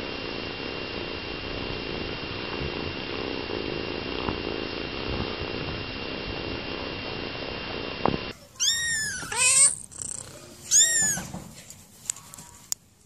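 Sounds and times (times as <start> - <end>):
kitten purring: 0.0 - 12.7
kitten meowing: 8.5 - 11.4.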